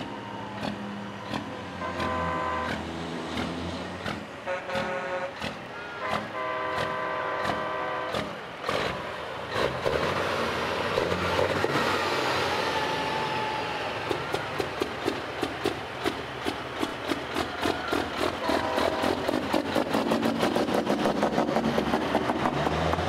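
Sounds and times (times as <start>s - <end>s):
diesel truck passing: 0.0s - 23.0s
truck air horn blasts: 1.7s - 2.9s, 4.4s - 8.4s, 18.3s - 19.5s.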